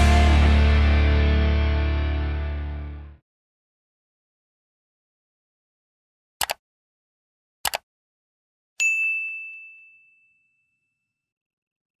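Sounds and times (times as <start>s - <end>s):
quick clicks: 6.4s - 6.6s, 7.6s - 7.8s
bright bell ding: 8.8s - 11.2s.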